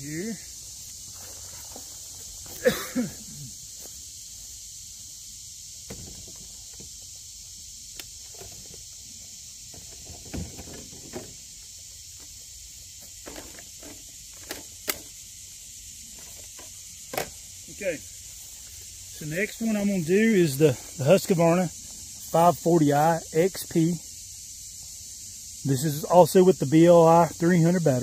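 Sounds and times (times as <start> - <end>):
insects droning: 0.0 - 28.0
footsteps: 0.8 - 2.8, 3.6 - 4.6.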